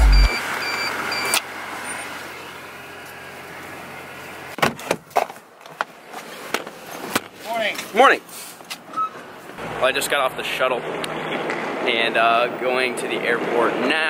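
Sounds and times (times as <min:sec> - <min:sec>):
car idling: 0:00.0 - 0:00.3.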